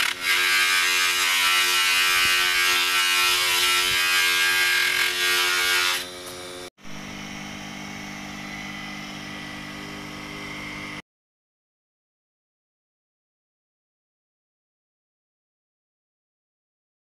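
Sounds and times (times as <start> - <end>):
buffing wheel motor humming: 6.0 - 11.0.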